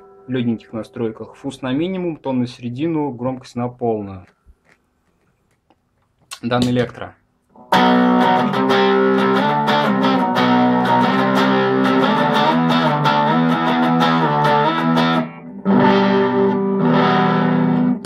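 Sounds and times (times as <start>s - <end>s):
fuzzed electric guitar chords strummed: 7.6s - 18.0s.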